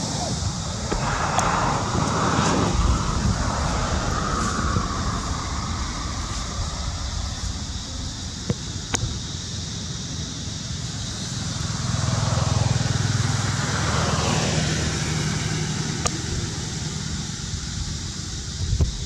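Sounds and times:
vehicle passing by: 0.3 - 8.4, 11.3 - 17.8.

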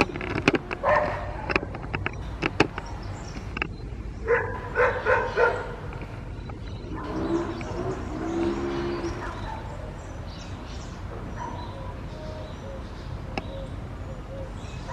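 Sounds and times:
dogs barking: 0.7 - 1.8, 4.2 - 6.0, 6.9 - 10.2, 11.1 - 12.4.

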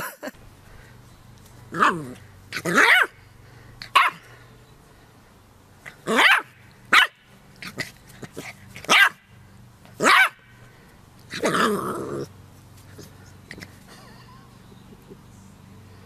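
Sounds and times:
puppy yapping: 1.8 - 3.1, 3.9 - 4.2, 6.0 - 9.2, 10.0 - 10.4.

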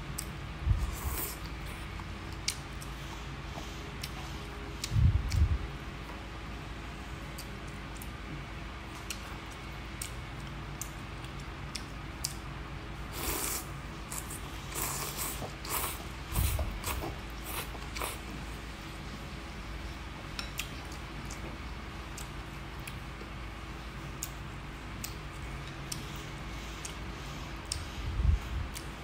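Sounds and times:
noodles being slurped: 13.1 - 18.2.

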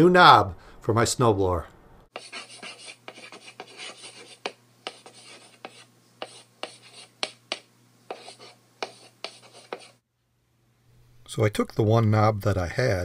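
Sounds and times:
chalk scratching on blackboard: 2.1 - 10.0
chalk tapping on board: 2.1 - 10.0.

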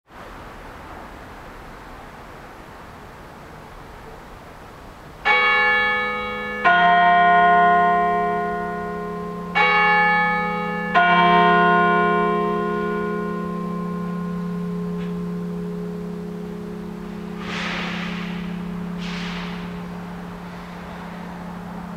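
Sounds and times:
church bell ringing: 5.2 - 21.9.

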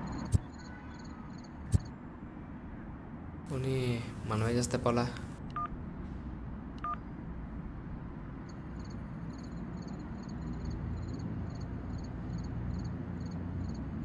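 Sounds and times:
crickets chirping: 0.0 - 1.9, 8.4 - 14.0.

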